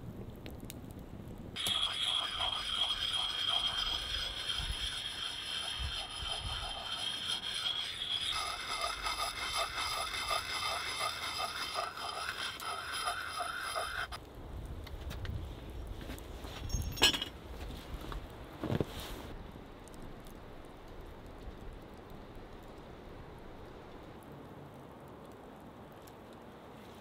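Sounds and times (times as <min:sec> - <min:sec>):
hand scraping hatchet head: 0:01.6 - 0:14.2.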